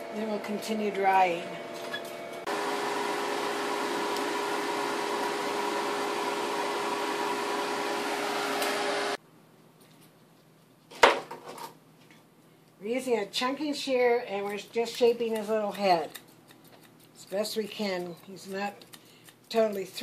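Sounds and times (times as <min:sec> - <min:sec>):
blow dryer blowing: 0:00.0 - 0:09.2.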